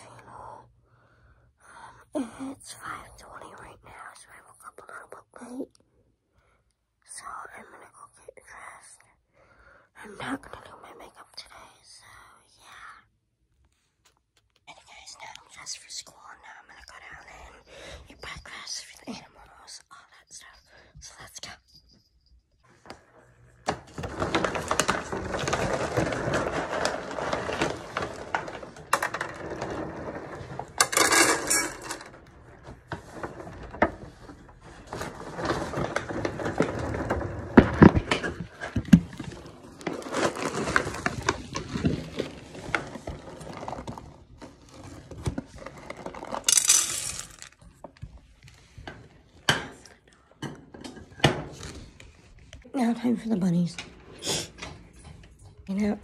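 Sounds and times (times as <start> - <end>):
pet bowls clinking and rattling: 23.0 - 42.2, 45.8 - 47.6.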